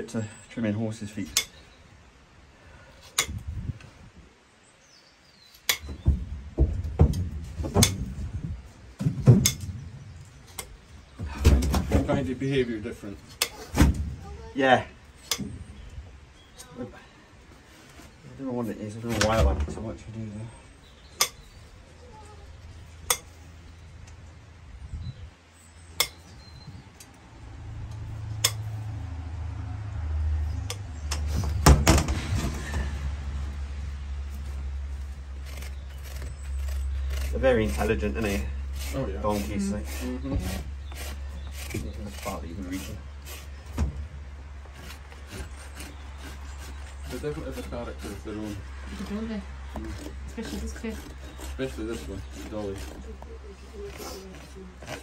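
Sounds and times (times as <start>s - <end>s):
hoof nippers cutting horn: 3.1s - 3.4s, 5.6s - 6.1s, 27.9s - 28.8s, 34.3s - 43.9s, 44.6s - 55.0s
hoof knocking on wooden stand: 5.8s - 8.1s
low rumble: 26.4s - 38.9s.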